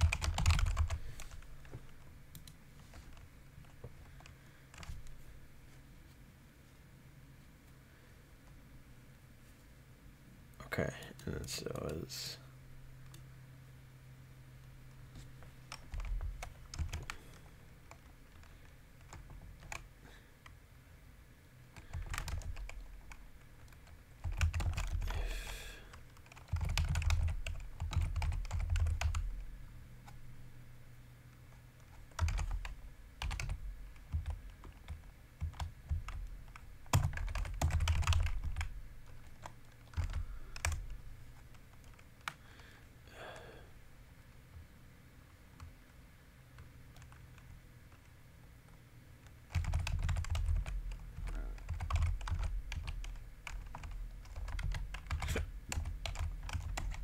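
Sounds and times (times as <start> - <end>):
typing on a computer keyboard: 0.0 - 1.4, 2.3 - 5.1, 15.7 - 20.6, 21.8 - 25.2, 25.9 - 29.4, 31.8 - 42.4, 46.6 - 48.1, 49.2 - 57.0.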